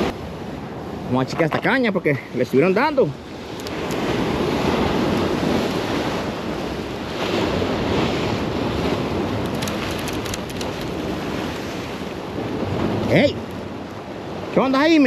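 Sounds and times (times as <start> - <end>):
wind on microphone: 0.0 - 1.7
surf breaking over rocks: 1.2 - 13.5.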